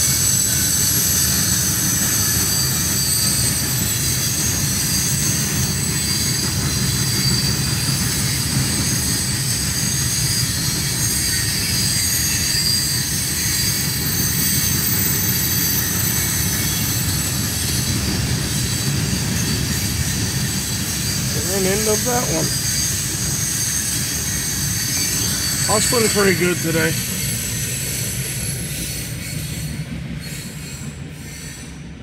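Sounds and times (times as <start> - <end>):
freight cars rumbling on rails: 0.0 - 32.0
wheel squeal: 0.0 - 32.0.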